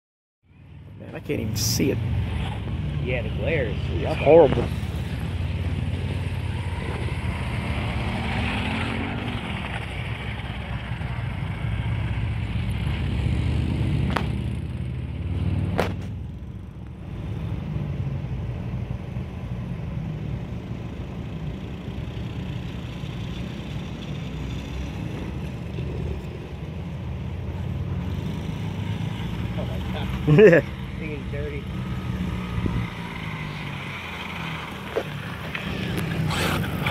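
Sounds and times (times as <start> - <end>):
wind rumble on microphone: 32.4 - 33.1
rc truck electric motor whining: 32.4 - 36.9.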